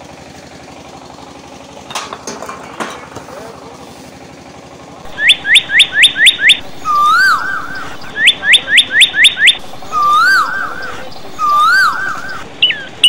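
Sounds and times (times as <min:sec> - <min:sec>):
call rising and falling: 0:05.1 - 0:13.0
loud bird-like chirping: 0:05.1 - 0:13.0
quick rising whistles: 0:05.2 - 0:12.9.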